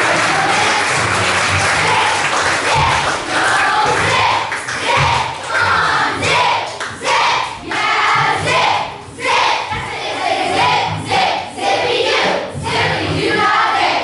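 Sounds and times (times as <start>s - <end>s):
children's chorus singing: 0.0s - 14.0s.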